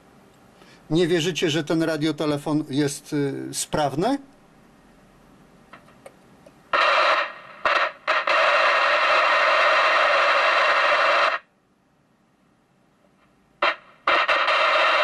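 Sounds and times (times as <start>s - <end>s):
radio static hiss: 6.7s - 11.5s, 13.6s - 15.0s.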